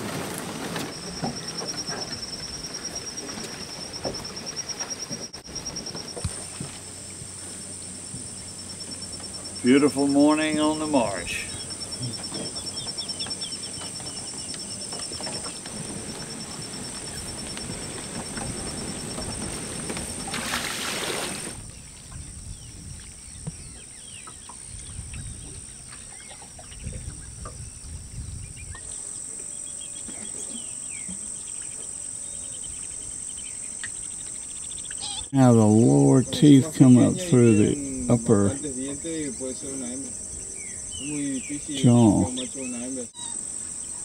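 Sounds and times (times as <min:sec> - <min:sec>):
insects trilling: 0:00.0 - 0:44.0
short bird calls: 0:34.8 - 0:35.4.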